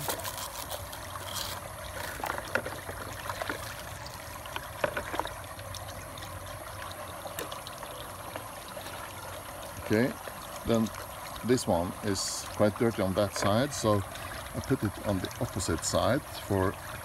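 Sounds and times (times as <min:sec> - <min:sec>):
scrubbing plastic by hand: 0:00.0 - 0:05.3
water trickling and splashing: 0:00.0 - 0:17.0.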